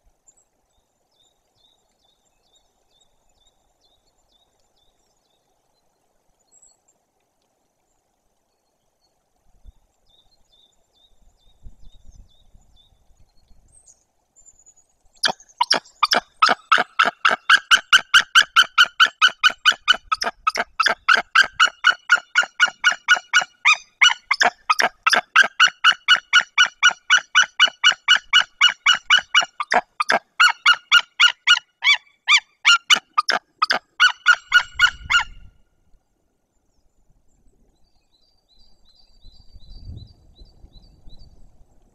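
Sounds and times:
eagle yelping calls: 15.2s - 35.4s.

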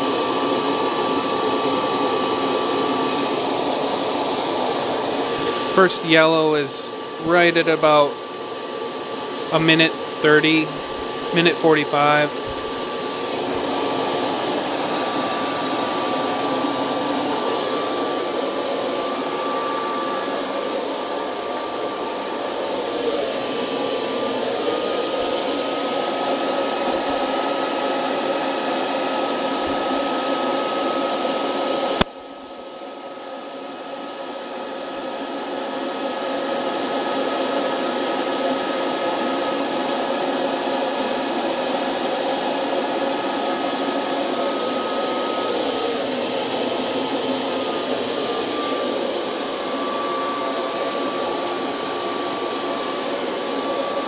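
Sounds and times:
coffee roaster blower rushing air: 0.0s - 54.0s
thin steady whine: 4.0s - 26.0s.

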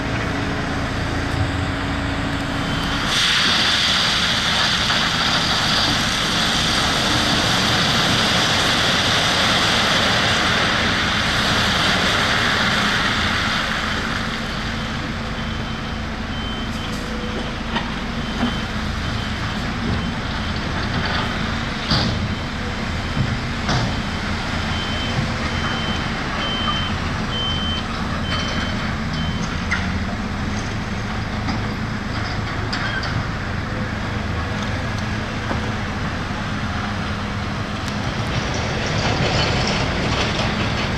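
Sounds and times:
diesel engine running: 0.0s - 40.9s
reversing alarm beeping: 15.4s - 20.8s, 23.9s - 29.6s.

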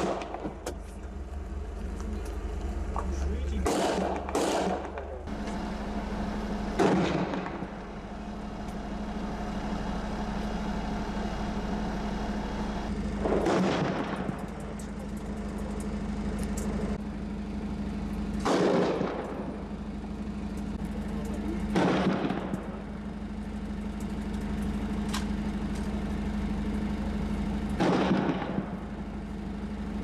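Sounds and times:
loud echoing gunshots: 0.0s - 0.5s, 3.6s - 5.4s, 6.6s - 7.8s, 13.2s - 14.5s, 18.4s - 19.6s, 21.6s - 22.9s, 27.8s - 29.0s
vehicle engine idling: 0.0s - 30.0s.

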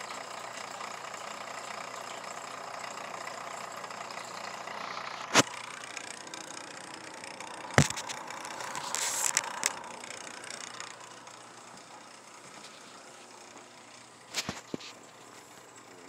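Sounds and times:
steady background hum: 3.8s - 16.0s.

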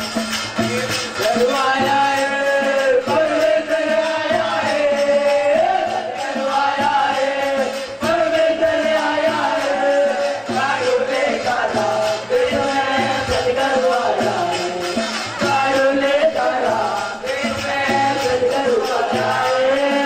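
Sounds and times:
folk singing with long gliding notes: 0.0s - 20.0s
instrumental accompaniment: 0.0s - 20.0s.

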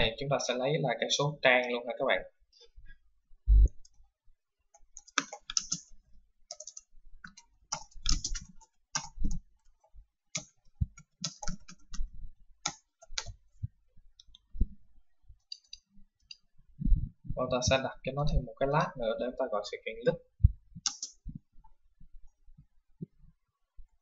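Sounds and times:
typing on computer keyboard: 4.8s - 5.9s, 6.5s - 13.4s, 20.8s - 21.2s.

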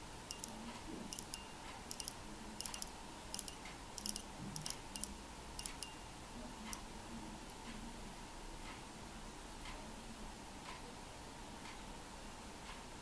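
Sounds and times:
watch crown clicking: 0.3s - 6.0s.

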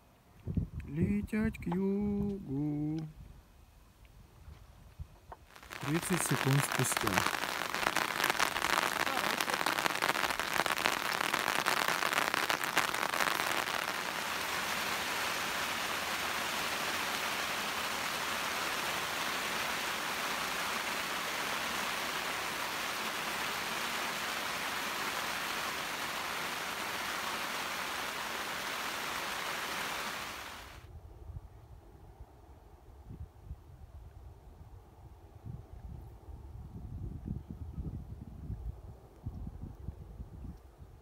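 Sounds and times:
rain falling: 5.5s - 30.8s.

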